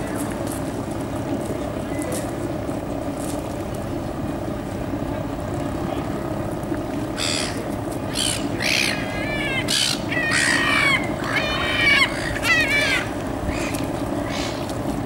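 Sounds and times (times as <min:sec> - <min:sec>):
steady low rumble: 0:00.0 - 0:15.0
gulls calling: 0:03.8 - 0:15.0.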